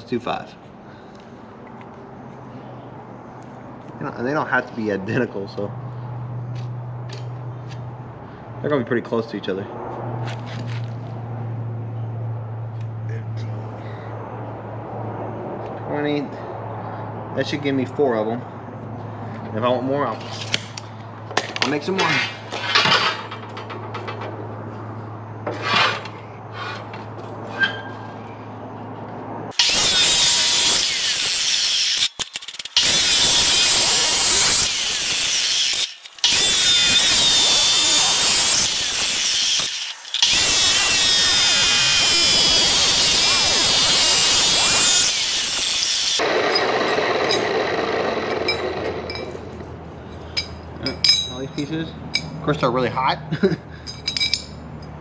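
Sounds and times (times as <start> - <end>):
chop saw grinding through metal: 25.5 - 26.9, 29.5 - 49.6
light metal clinks: 53.8 - 54.6.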